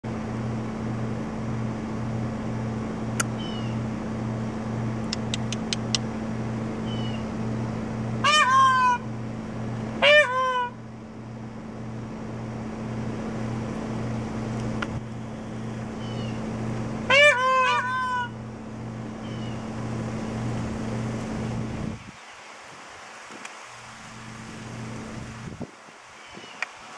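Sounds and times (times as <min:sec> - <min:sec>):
pulsing low hum: 0:00.0 - 0:22.1, 0:23.8 - 0:25.7
peacock calling: 0:03.4 - 0:03.8, 0:06.8 - 0:07.3, 0:08.2 - 0:09.1, 0:10.0 - 0:10.8, 0:16.0 - 0:18.5, 0:19.2 - 0:19.7.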